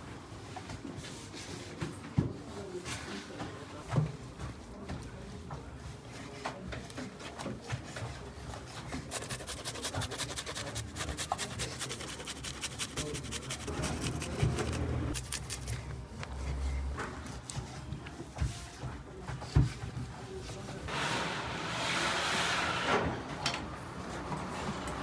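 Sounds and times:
garlic rasping on grater: 0:09.0 - 0:15.7.

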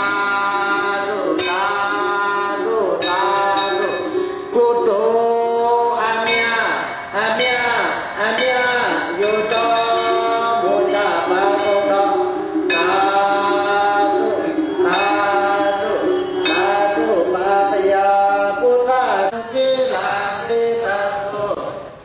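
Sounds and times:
person chanting into a microphone: 0:00.0 - 0:21.9.

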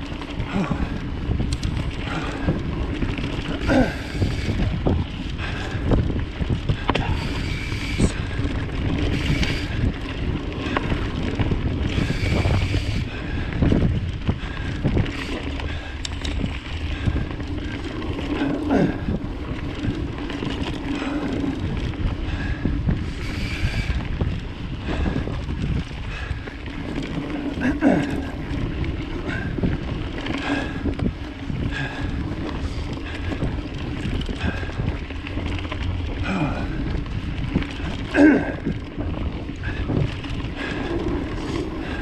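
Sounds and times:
bike rattling and knocking: 0:00.0 - 0:42.0
bike tyres on dirt: 0:00.0 - 0:42.0
wind buffeting microphone: 0:00.0 - 0:42.0.

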